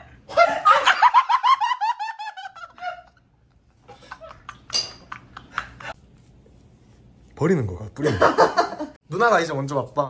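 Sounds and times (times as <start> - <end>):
utensils and dishes clinking: 4.6 - 5.2
person laughing: 8.0 - 9.0.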